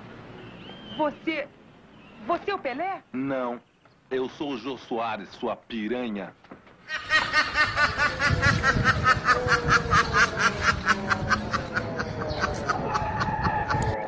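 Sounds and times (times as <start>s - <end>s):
high-pitched cackling laugh: 6.9s - 14.0s.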